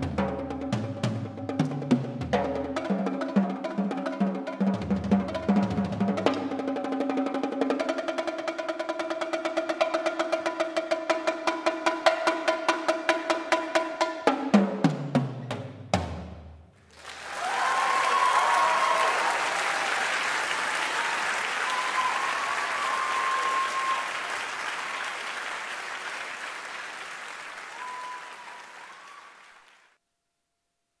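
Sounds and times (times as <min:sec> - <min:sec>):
audience applauding: 0:16.8 - 0:30.0.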